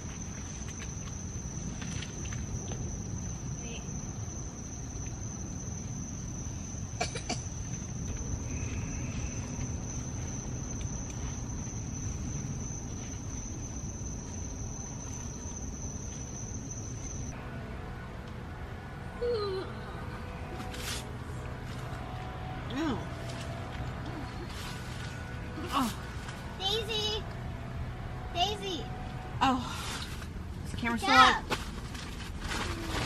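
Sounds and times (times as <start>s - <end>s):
crickets trilling: 0.0s - 17.4s.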